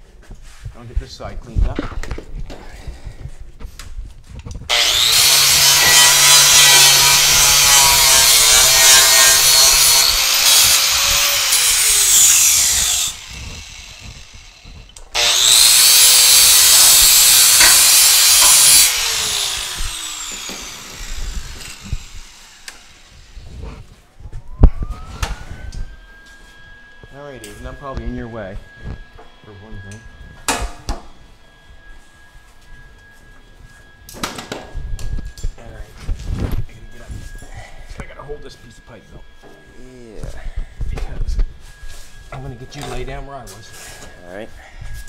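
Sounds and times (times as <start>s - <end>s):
angle grinder grinding steel: 4.7s - 23.9s.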